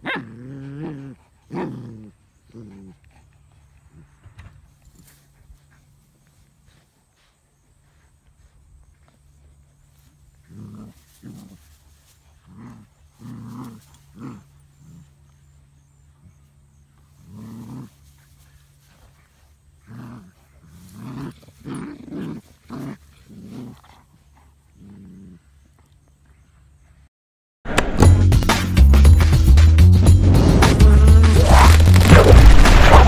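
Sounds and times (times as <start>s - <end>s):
dogs play growling: 0.0s - 4.2s, 9.0s - 26.0s.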